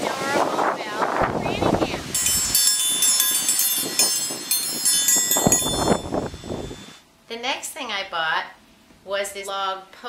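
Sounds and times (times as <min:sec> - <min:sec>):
iron dinner bell clanging: 0:02.2 - 0:06.9.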